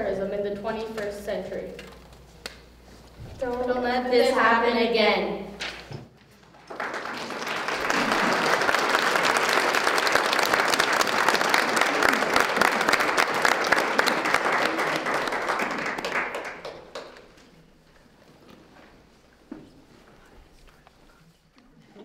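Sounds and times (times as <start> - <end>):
audience applauding: 6.3 - 17.5.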